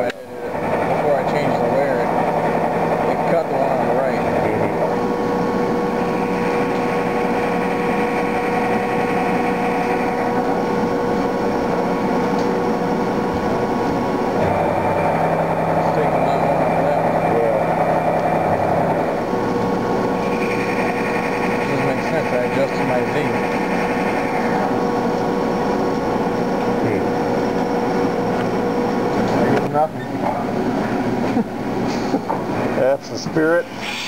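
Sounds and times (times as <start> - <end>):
low machine hum: 0.0 - 34.0
mill spindle cutting whine: 0.0 - 34.0.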